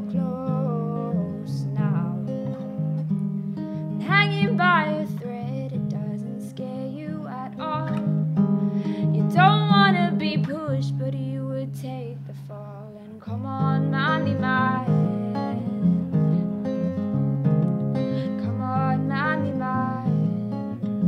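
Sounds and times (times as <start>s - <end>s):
woman singing: 0.0s - 2.5s, 4.0s - 8.2s, 8.9s - 16.4s, 18.0s - 20.6s
acoustic guitar strummed and picked: 0.0s - 21.0s.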